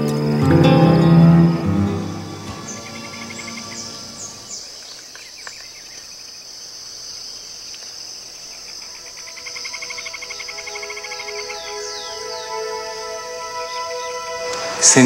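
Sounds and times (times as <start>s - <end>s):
rapid pulsing insect chirp: 0.0s - 14.5s
high-pitched insect drone: 0.0s - 15.0s
descending bird whistles: 1.1s - 4.6s.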